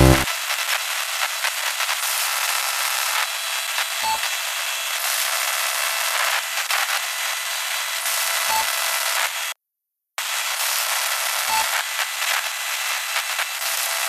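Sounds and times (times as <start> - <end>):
short beep: 0.0 - 0.3.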